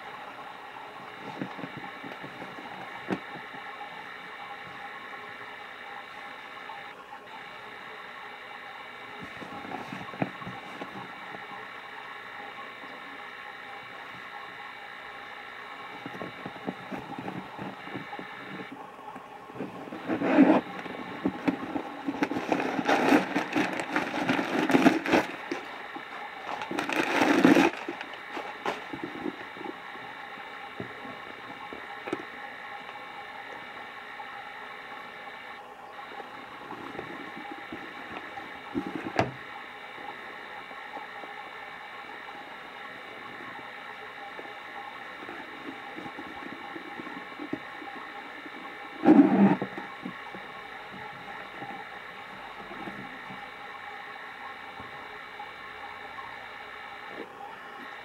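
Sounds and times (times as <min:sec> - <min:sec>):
machine-like hum: 0:00.0 - 0:58.0
handbag rustling: 0:20.0 - 0:25.8, 0:26.4 - 0:29.3.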